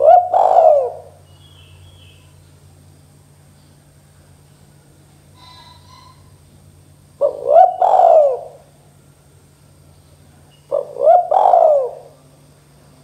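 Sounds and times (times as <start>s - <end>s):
dove cooing: 0.0s - 1.2s, 7.2s - 8.7s, 10.7s - 12.2s.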